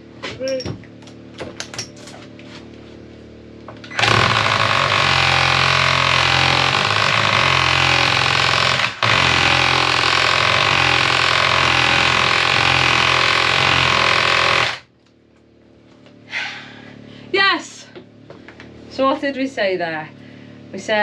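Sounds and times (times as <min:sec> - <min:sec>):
power hammer running: 0:03.9 - 0:14.9.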